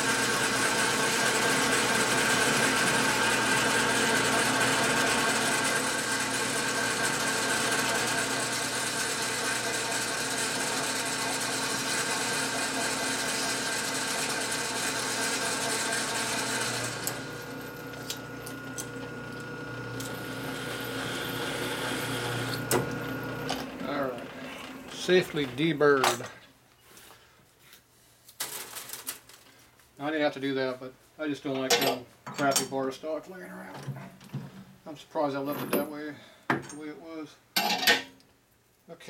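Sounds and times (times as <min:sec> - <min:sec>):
lathe gear whine: 0:00.2 - 0:25.6.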